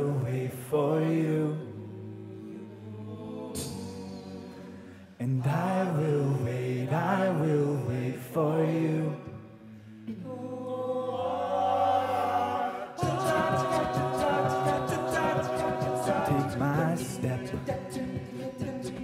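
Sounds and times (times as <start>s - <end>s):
male a cappella group singing: 0.0s - 19.0s
vocal percussion beat: 3.5s - 6.2s, 13.0s - 19.0s.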